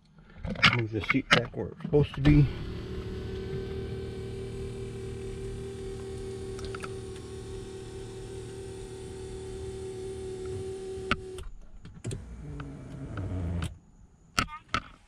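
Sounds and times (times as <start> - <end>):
power seat motor humming: 2.3 - 13.7.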